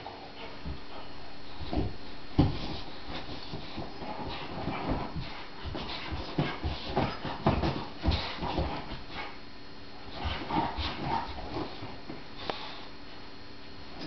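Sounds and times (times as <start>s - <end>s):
thumps and rustling of dog bed: 1.6s - 9.3s, 10.1s - 12.4s.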